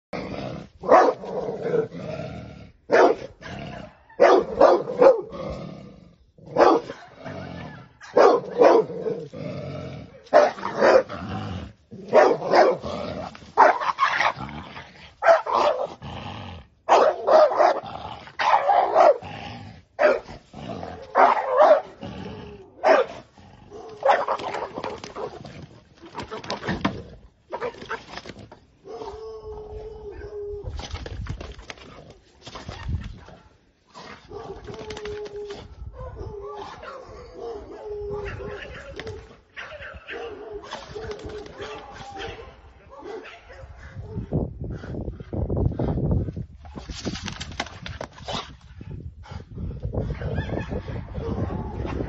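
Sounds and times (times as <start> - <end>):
dog barking: 0.8 - 1.3, 2.9 - 3.3, 4.1 - 5.3, 6.5 - 9.0, 10.3 - 11.1, 12.1 - 12.8, 13.6 - 13.8, 15.2 - 15.9, 16.9 - 17.8, 18.4 - 19.2, 20.0 - 20.3, 21.1 - 22.0, 22.8 - 23.2, 24.0 - 24.4, 36.0 - 39.0, 39.6 - 44.3.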